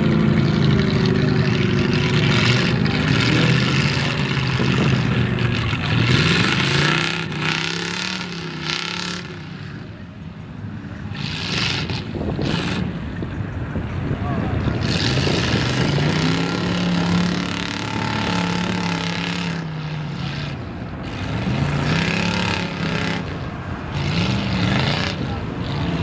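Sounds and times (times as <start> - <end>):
truck engine running hard: 0.0 - 26.0.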